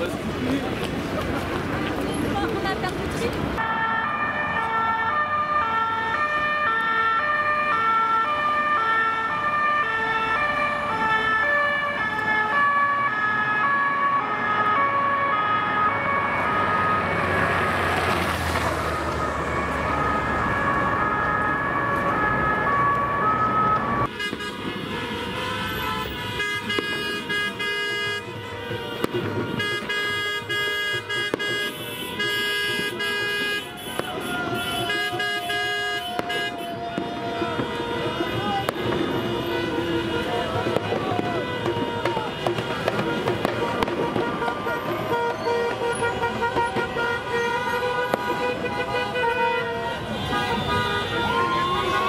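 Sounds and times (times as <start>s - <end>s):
street traffic: 0.0s - 52.0s
two-tone police siren: 3.6s - 52.0s
car horns: 23.6s - 52.0s.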